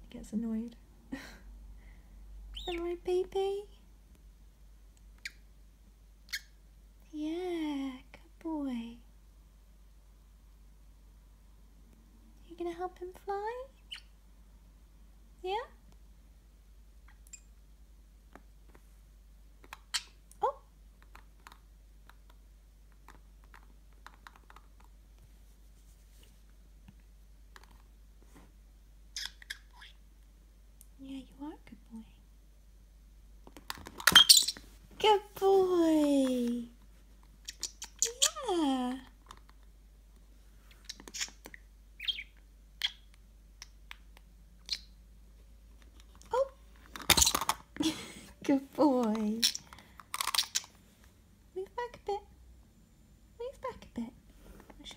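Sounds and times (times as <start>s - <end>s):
budgerigar chirping: 2.5s - 2.8s, 6.3s - 6.6s, 34.1s - 34.6s, 42.0s - 43.1s.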